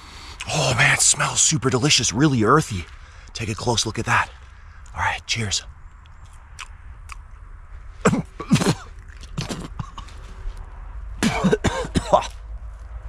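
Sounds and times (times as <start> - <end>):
man coughing and hacking: 8.1 - 10.2, 11.2 - 12.4.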